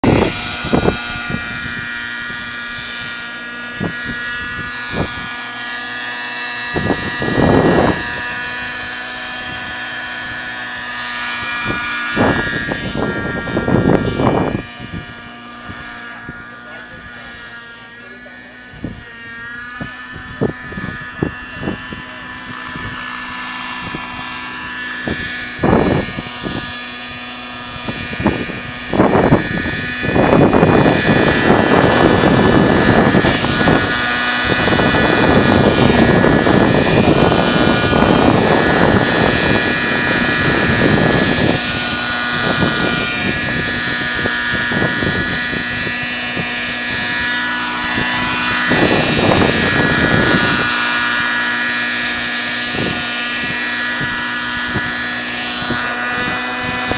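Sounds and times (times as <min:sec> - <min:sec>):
gusty rushing noise: 0:00.0 - 0:02.8, 0:09.4 - 0:17.4, 0:23.8 - 0:56.9
model helicopter engine whine: 0:00.0 - 0:56.9.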